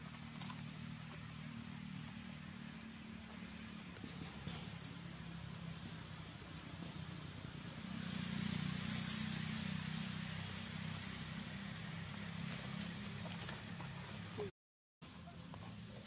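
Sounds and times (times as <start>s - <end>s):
vehicle engine humming: 0.0s - 16.0s
hiss: 7.5s - 12.4s.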